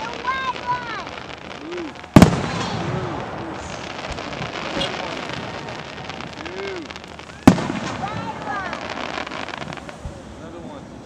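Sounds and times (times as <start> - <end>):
faint firework pops: 0.0 - 10.3
firework shell booming: 2.0 - 10.3.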